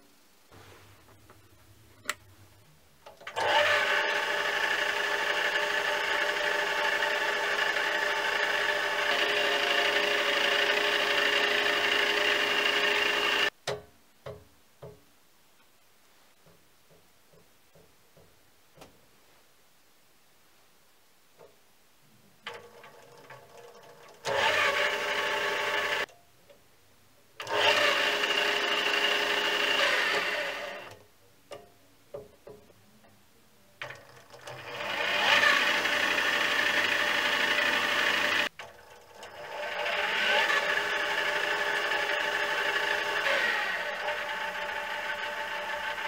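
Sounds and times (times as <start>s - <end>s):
lathe motor whine: 3.3s - 13.5s, 23.7s - 26.0s, 27.4s - 31.0s, 34.5s - 46.0s.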